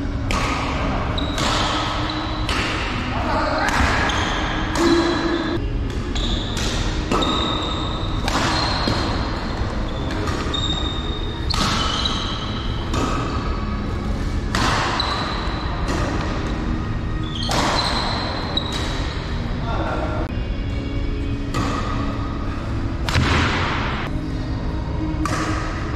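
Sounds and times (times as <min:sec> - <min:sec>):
rackets hitting shuttlecock: 0:00.0 - 0:13.7, 0:14.3 - 0:16.7, 0:17.3 - 0:19.2, 0:21.4 - 0:22.2, 0:23.0 - 0:24.1, 0:25.2 - 0:25.9
sneakers squeaking on floor: 0:01.1 - 0:02.7, 0:03.7 - 0:16.4, 0:17.2 - 0:19.2.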